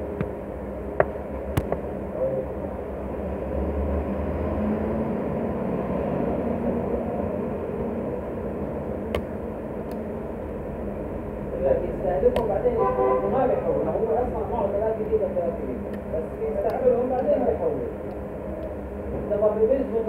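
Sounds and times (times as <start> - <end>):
low background rumble and hum: 0.0 - 4.4, 5.1 - 20.0.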